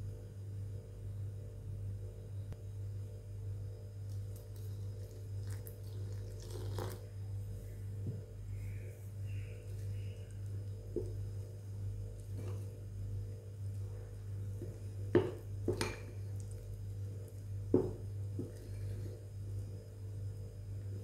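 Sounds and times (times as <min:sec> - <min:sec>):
low hum: 0:00.0 - 0:21.0
dough being kneaded in a bowl: 0:04.0 - 0:08.4, 0:09.1 - 0:21.0
sharp knocks against bowl: 0:15.1 - 0:16.1, 0:17.7 - 0:18.5.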